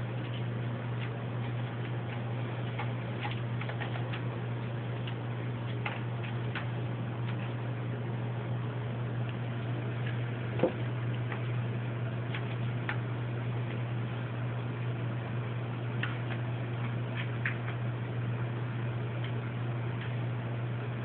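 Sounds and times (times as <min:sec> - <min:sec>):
steady low hum: 0:00.0 - 0:21.0
cat pawing scratching post: 0:00.2 - 0:07.6.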